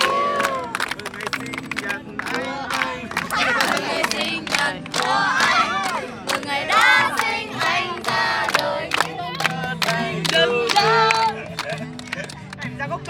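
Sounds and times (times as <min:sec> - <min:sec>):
people cheering and whooping: 0:00.0 - 0:01.3, 0:02.2 - 0:12.4
rhythmic hand-clapping: 0:00.0 - 0:13.0.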